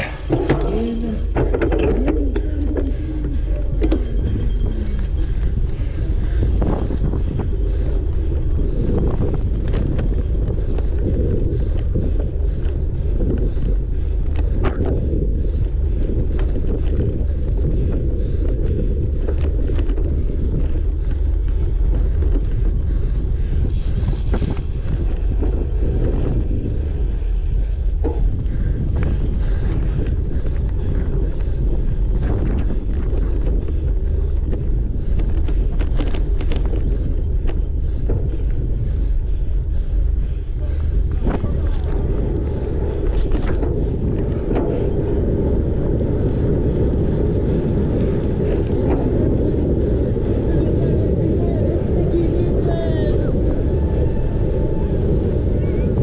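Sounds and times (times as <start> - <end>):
bike clicks and knocks: 0.0 - 47.2
wind buffeting microphone: 0.0 - 56.0.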